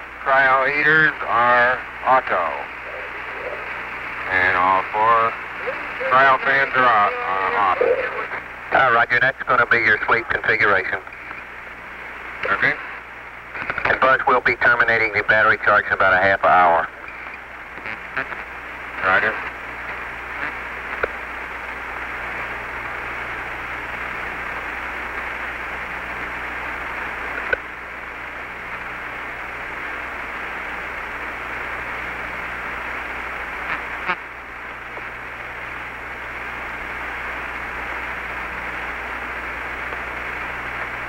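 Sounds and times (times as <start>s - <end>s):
radio channel hiss: 0.0s - 41.0s
sharp radio clicks: 9.4s - 11.6s, 12.3s - 15.2s, 17.0s - 21.2s, 27.3s - 27.7s, 39.8s - 41.0s.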